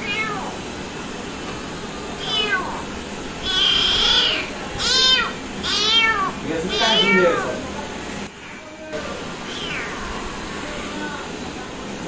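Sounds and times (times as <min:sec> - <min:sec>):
kitten meowing: 0:00.0 - 0:00.6, 0:02.2 - 0:02.8, 0:03.4 - 0:07.6, 0:09.4 - 0:11.2.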